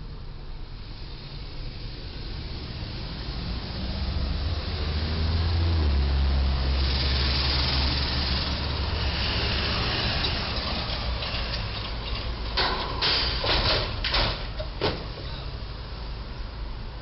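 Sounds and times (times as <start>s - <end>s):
traffic engine rumble: 0.0s - 17.0s
loud metal bangs and crunches: 10.5s - 15.1s.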